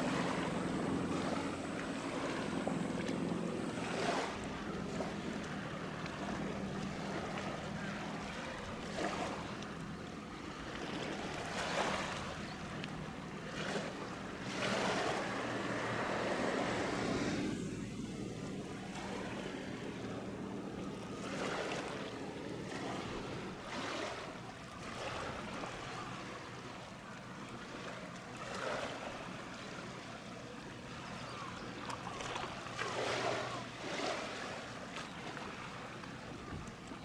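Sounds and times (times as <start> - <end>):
ship engine hum: 0.0 - 37.0
waves washing: 0.0 - 37.0
wind buffeting microphone: 32.4 - 37.0.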